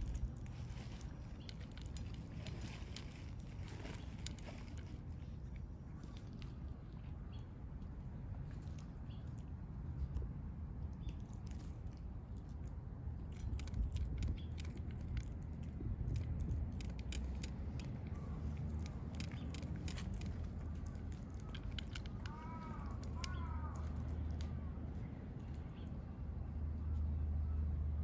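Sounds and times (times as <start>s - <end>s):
cats crunching dry food: 0.0s - 6.6s, 11.1s - 24.5s.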